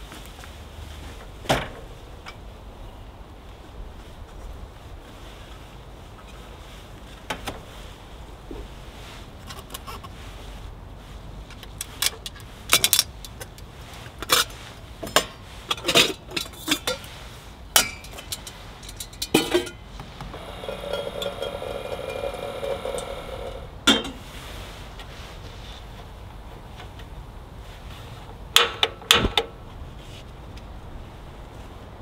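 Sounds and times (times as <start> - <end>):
metal cookware clinking: 17.8 - 19.8, 20.4 - 23.1
metallic ringing: 20.4 - 24.1.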